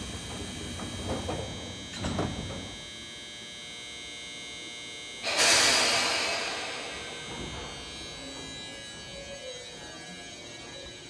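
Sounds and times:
electrical hum with whine: 0.0 - 11.0
compressed air hiss: 5.2 - 7.7
train door thump: 5.3 - 8.1.

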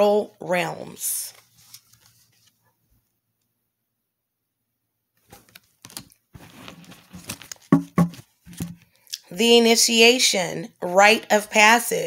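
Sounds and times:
paper cards clicking and rustling: 5.3 - 8.8.

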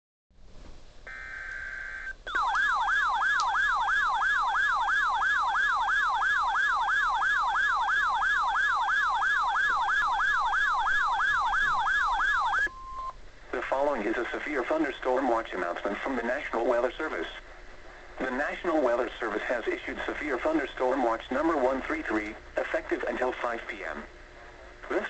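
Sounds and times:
buzzing data burst: 1.1 - 2.6
warbling siren tone: 1.1 - 13.1.

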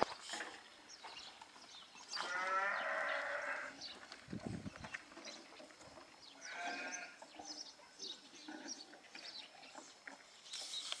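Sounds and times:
sheep or goat bleating: 2.2 - 3.8, 6.4 - 7.2.

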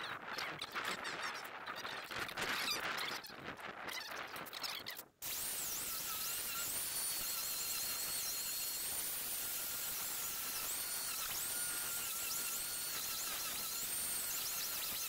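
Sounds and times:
sped-up angle grinder whine: 4.6 - 15.0.

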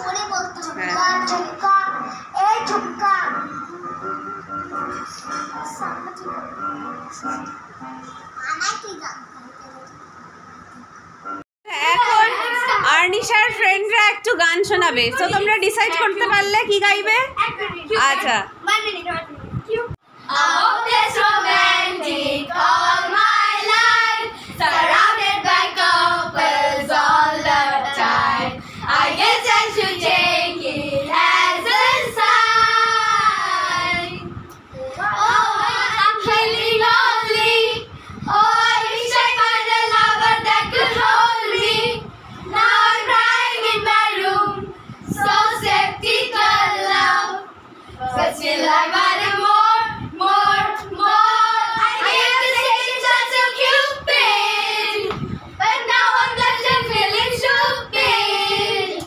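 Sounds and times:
girls singing together: 20.2 - 59.0.

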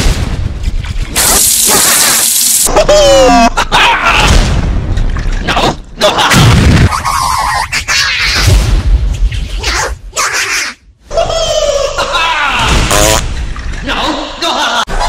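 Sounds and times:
explosion boom: 0.0 - 2.7, 8.4 - 9.2
loud hiss like spraying water: 1.2 - 2.7
cartoon character chatter: 7.0 - 8.5, 9.6 - 10.8.

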